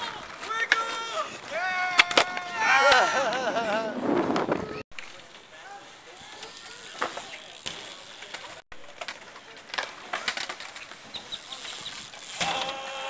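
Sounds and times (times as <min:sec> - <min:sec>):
bmx bike hitting ramps: 0:06.3 - 0:09.2.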